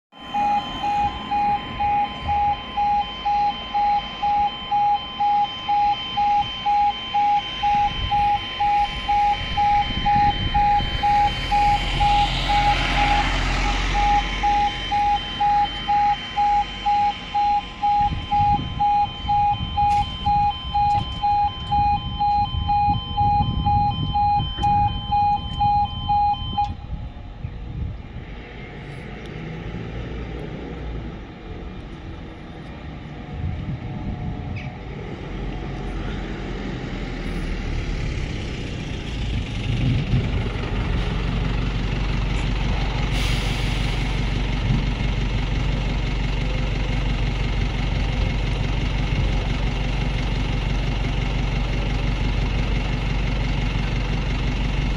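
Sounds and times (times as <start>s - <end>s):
level crossing alarm beeping: 0.1s - 27.2s
rushing road noise: 0.1s - 54.9s.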